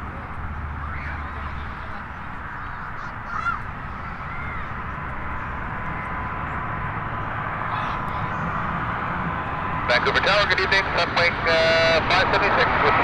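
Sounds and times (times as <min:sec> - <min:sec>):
jet engines rumbling: 0:00.0 - 0:13.0
thin steady whine: 0:03.6 - 0:13.0.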